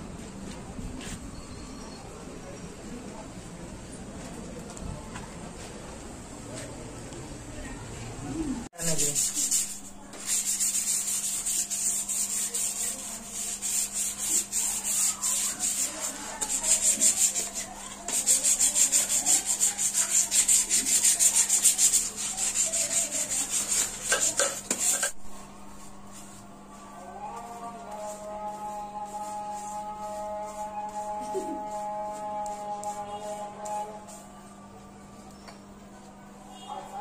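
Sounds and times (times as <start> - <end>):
sandpaper rubbing on wood: 8.8 - 25.2, 27.4 - 33.5.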